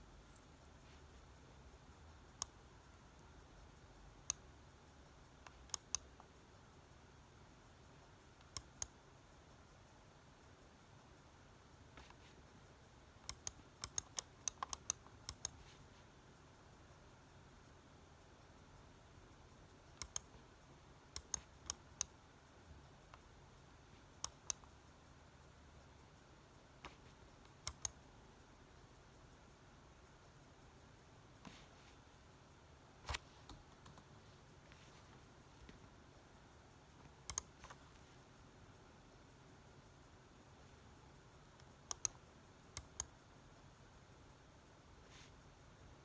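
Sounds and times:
computer mouse clicking: 0.2 - 1.2, 1.9 - 3.6, 4.2 - 6.4, 8.3 - 9.1, 11.9 - 12.4, 13.2 - 15.9, 19.6 - 22.2, 23.1 - 24.8, 26.8 - 28.2, 33.0 - 36.0, 36.8 - 38.2, 40.6 - 43.2
laptop keys clicking: 5.3 - 6.4, 13.2 - 15.8, 19.9 - 20.4, 21.1 - 22.2, 26.8 - 28.0, 37.0 - 38.1, 41.5 - 43.2.

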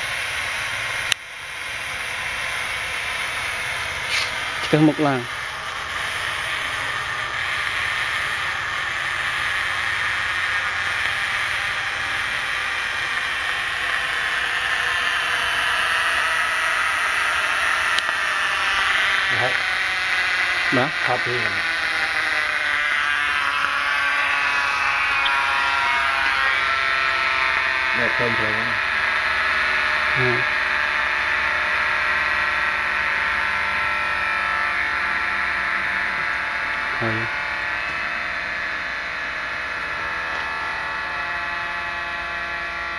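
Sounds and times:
gas hissing into a balloon: 0.0 - 21.6
electrical buzzing: 0.0 - 42.9.

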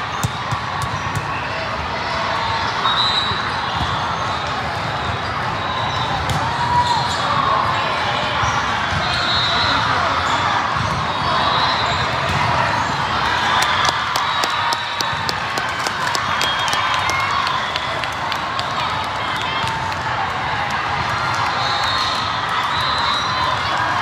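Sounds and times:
many voices in echoing hall: 0.0 - 24.0
volleyballs struck and bouncing: 12.1 - 18.8.

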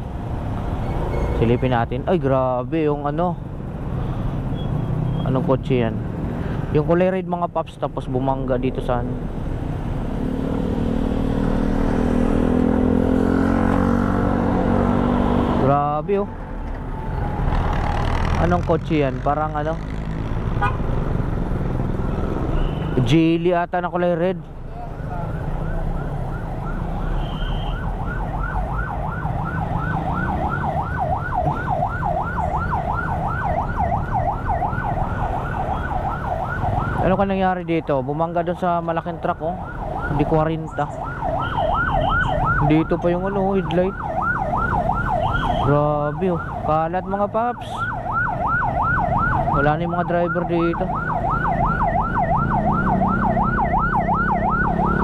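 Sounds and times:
engine hum in traffic: 0.0 - 55.0
road noise: 0.0 - 55.0
ambulance siren yelping: 15.6 - 18.6, 24.6 - 37.6, 38.5 - 55.0.

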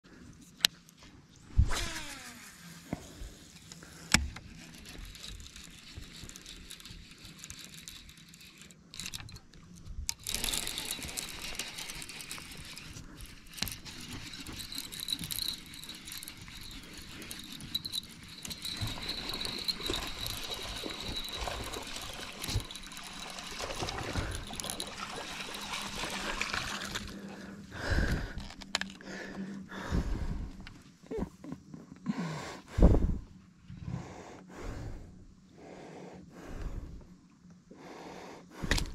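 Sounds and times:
steady low hum: 0.1 - 38.9
fishing reel clicks and whir: 1.6 - 30.8, 38.4 - 38.9
fishing reel cranking: 1.7 - 30.4
water splashing: 18.5 - 27.5.

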